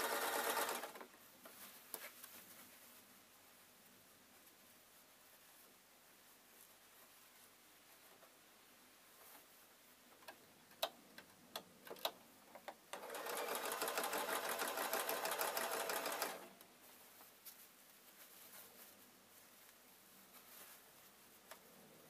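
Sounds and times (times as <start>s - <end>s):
sewing machine stitching: 0.0s - 1.0s, 12.9s - 16.5s.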